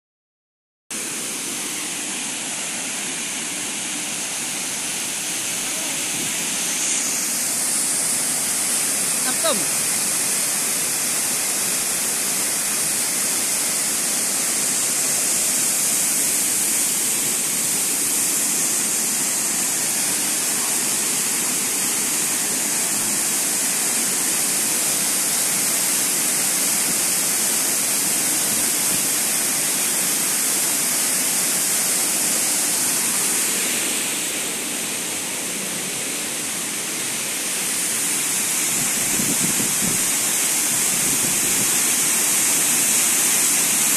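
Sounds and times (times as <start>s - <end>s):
waterfall rushing water: 1.0s - 43.9s.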